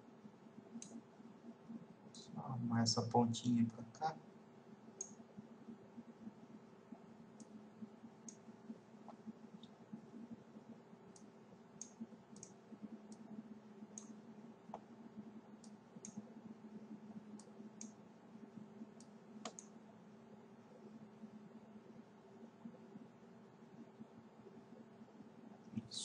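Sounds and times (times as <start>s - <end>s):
low steady hum: 0.0s - 26.0s
computer mouse clicks: 0.7s - 1.1s, 5.0s - 5.2s, 6.9s - 7.6s, 8.2s - 10.4s, 11.1s - 14.9s, 15.6s - 16.4s, 17.2s - 18.0s, 18.9s - 19.8s.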